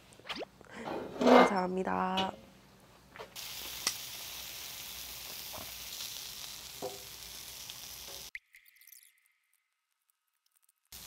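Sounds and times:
meat sizzling on griddle: 3.4s - 8.3s.

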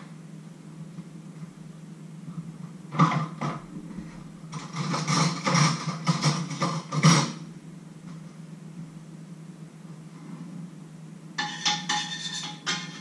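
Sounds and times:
steady low hum: 0.0s - 13.0s
kitchenware rattling and clinking: 11.4s - 13.0s.

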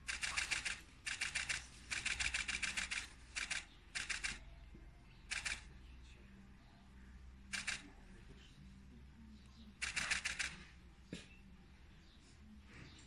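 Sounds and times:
camera shutters clicking: 0.1s - 4.4s, 5.3s - 5.7s, 7.6s - 7.8s, 9.8s - 10.6s.

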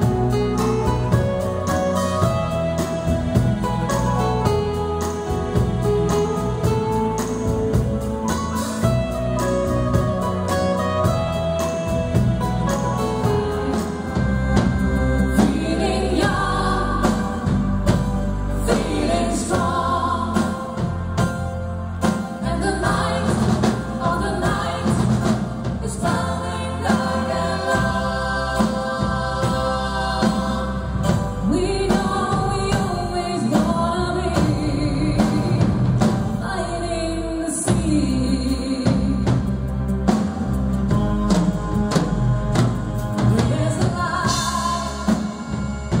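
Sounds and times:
bass guitar: 0.0s - 46.0s
drum kit: 0.0s - 46.0s
voices singing: 13.2s - 21.4s, 22.0s - 39.3s, 40.2s - 46.0s.

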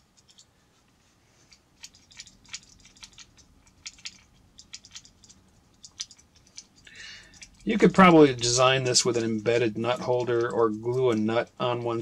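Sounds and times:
nut clicking and rattling on screw: 0.0s - 0.5s, 1.8s - 12.0s.

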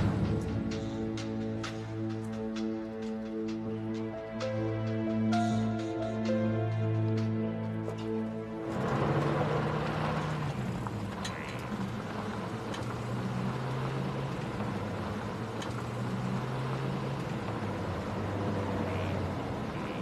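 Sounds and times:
car engine humming: 0.0s - 20.0s
road noise: 0.0s - 20.0s.

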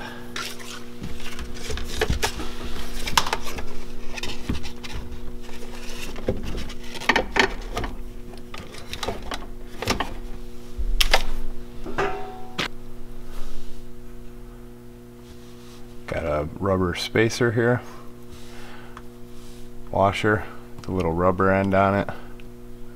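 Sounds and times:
hands handling plastic parts: 0.4s - 10.2s.

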